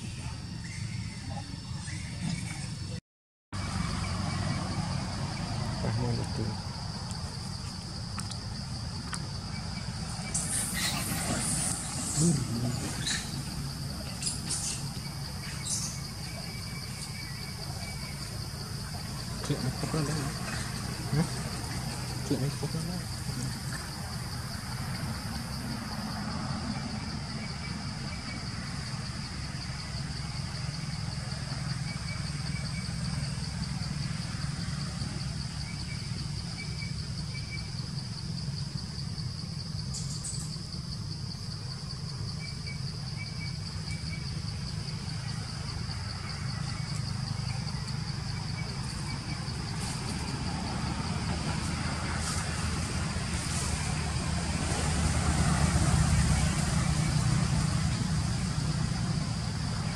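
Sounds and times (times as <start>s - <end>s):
continuous high-pitched whine: 3.6s - 59.9s.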